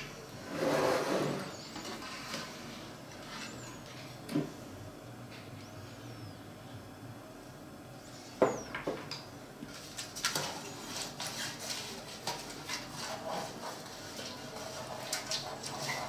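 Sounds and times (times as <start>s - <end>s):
brush scraping metal tray: 0.4s - 2.6s, 10.4s - 16.0s.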